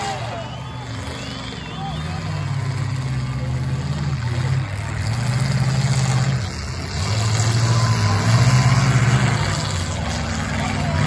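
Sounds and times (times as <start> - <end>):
car engines revving hard: 0.0 - 11.0.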